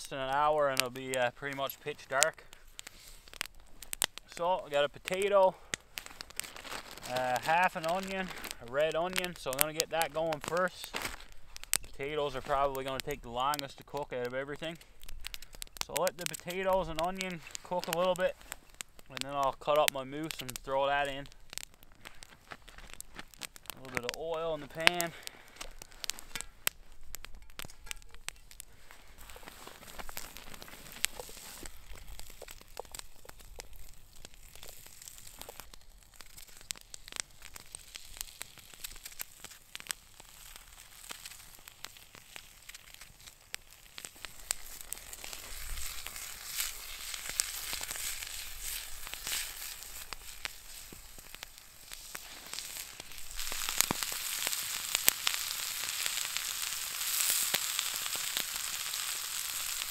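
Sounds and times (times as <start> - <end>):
vegetables sizzling in oil: 20.0 - 59.9.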